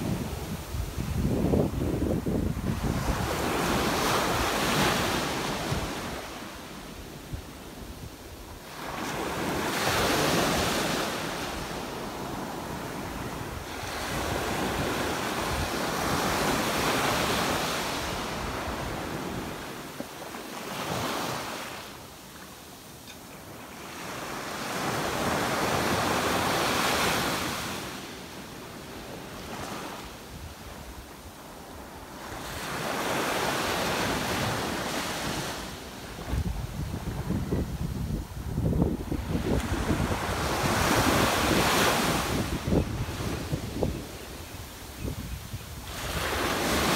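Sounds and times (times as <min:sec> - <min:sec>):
wind buffeting microphone: 0:00.0 - 0:06.2, 0:36.2 - 0:46.9
ocean waves washing up beach: 0:00.0 - 0:46.9.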